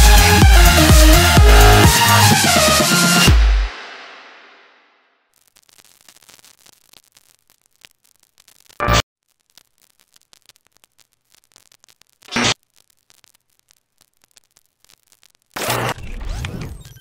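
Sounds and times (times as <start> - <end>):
music: 0.0 - 4.8
loud noise bursts: 0.0 - 5.0
faint static crackle: 4.6 - 17.0.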